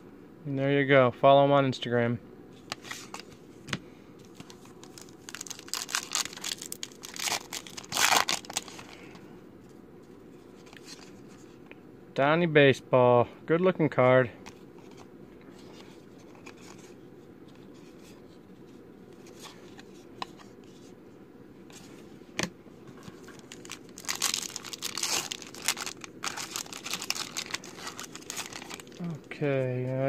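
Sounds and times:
wrapper torn and crinkled: 4.8s - 9.0s, 23.3s - 29.0s.

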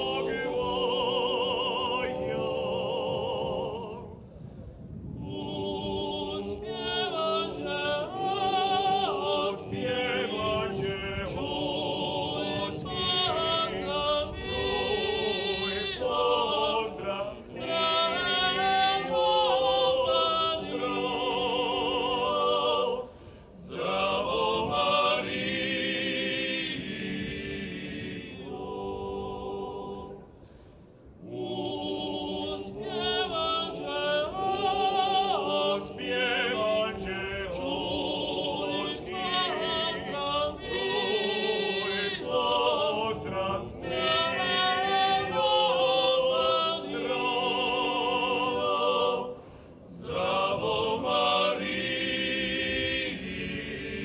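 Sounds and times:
male choir singing in harmony: 0.0s - 54.0s
singers breathing: 4.1s - 5.0s, 23.0s - 23.6s, 30.2s - 31.2s, 49.3s - 50.0s.

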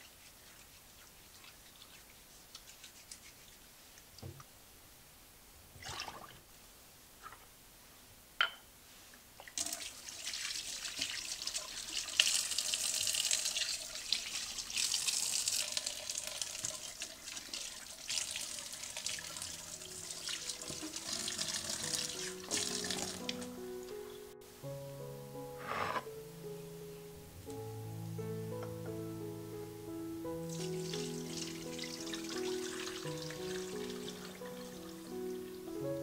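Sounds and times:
tap water splashing in sink: 9.5s - 19.5s, 20.2s - 23.5s
plucked background music: 19.6s - 36.0s.

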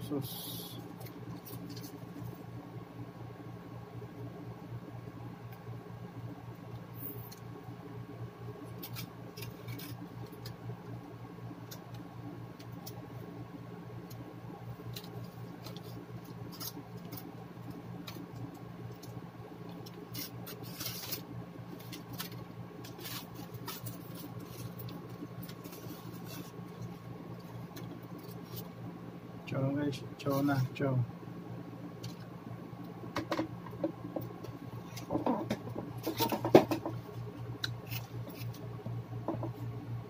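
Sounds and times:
low electrical hum: 0.0s - 40.0s
aluminium foil crinkling: 0.9s - 2.4s, 8.7s - 10.6s, 14.1s - 28.7s.

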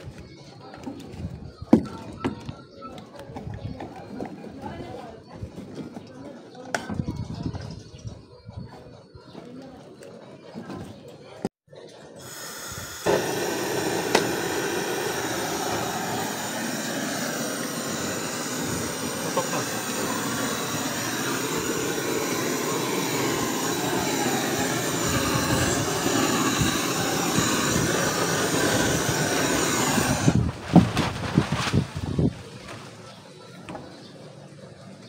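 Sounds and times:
blowtorch flame hissing: 12.2s - 30.9s.

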